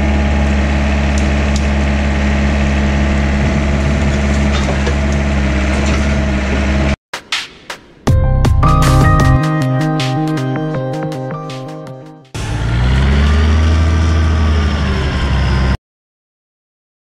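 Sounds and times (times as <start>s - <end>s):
excavator engine running: 0.0s - 7.0s, 10.7s - 15.8s.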